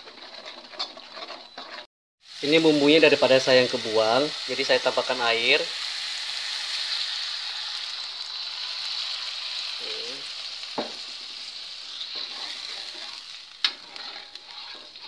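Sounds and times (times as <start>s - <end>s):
metal spatula stirring in wok: 0.0s - 1.9s, 11.1s - 15.0s
spice paste sizzling in a wok: 0.0s - 15.0s.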